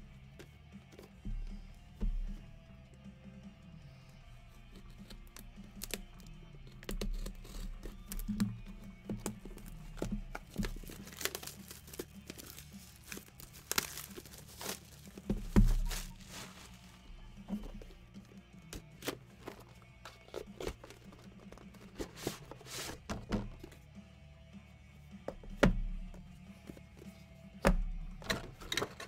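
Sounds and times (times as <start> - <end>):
plastic wrapping tearing and crinkling: 9.6 - 17.0.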